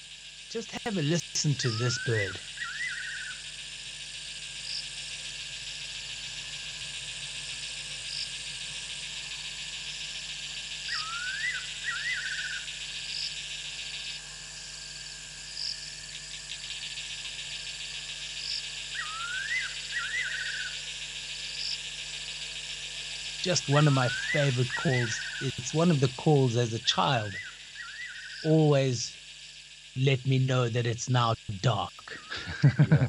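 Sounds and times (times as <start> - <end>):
insects chirring: 0.0 - 33.0
nightjar whistled call: 1.5 - 3.5, 10.8 - 12.8, 18.9 - 20.8, 23.5 - 26.0, 27.2 - 29.1.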